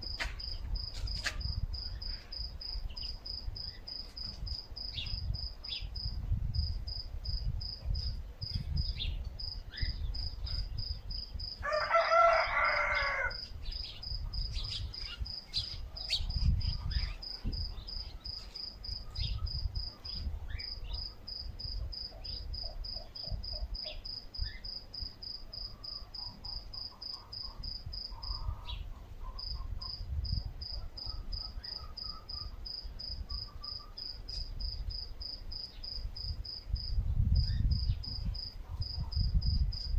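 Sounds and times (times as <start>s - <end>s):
cricket chirping: 0.0s - 39.9s
rooster crowing: 11.6s - 13.5s
bird chirps: 31.0s - 34.4s.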